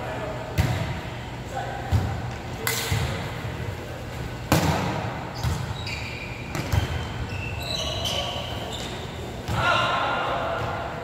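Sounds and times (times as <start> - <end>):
volleyball hits echoing: 4.4 - 5.7
sneaker squeaks on court: 5.4 - 9.2.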